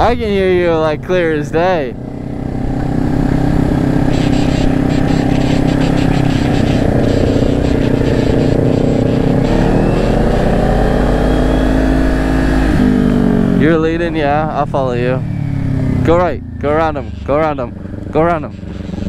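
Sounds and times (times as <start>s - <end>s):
motorcycle engine accelerating: 0.0s - 19.0s
wind buffeting helmet microphone: 2.0s - 11.0s.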